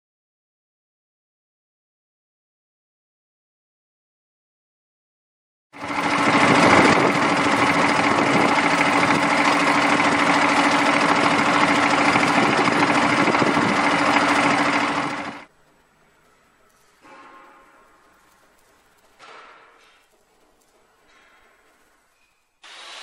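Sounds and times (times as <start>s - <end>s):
dredger engine running: 5.8s - 15.5s.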